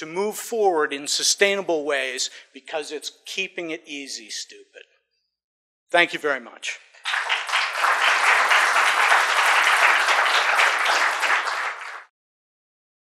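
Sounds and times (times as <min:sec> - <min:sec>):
audience applauding: 0:07.0 - 0:12.1.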